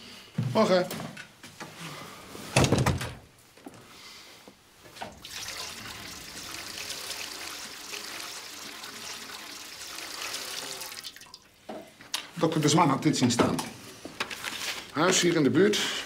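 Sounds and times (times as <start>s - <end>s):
door shutting with a thump: 2.6s - 3.2s
trickling running water: 5.0s - 11.5s.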